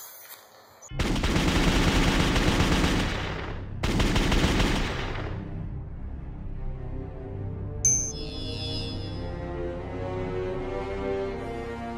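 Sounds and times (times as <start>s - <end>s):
automatic gunfire: 0.9s - 5.4s.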